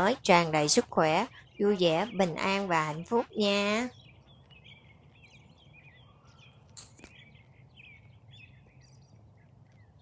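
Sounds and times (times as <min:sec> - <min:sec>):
songbirds chirping: 0:00.0 - 0:10.0
sharp click: 0:06.7 - 0:07.2.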